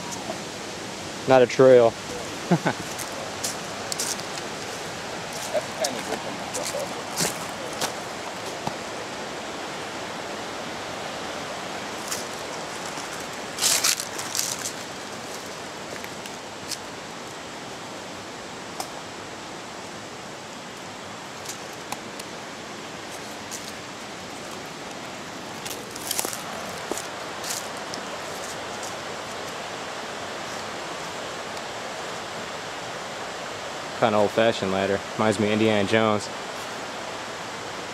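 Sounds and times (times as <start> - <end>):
rushing water hiss: 0.0 - 37.9.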